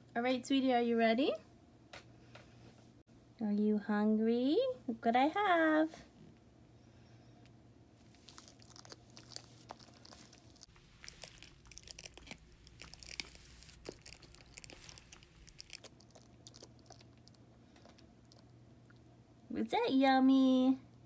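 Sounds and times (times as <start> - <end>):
lizard chewing clicks and crunches: 8.1 - 19.0.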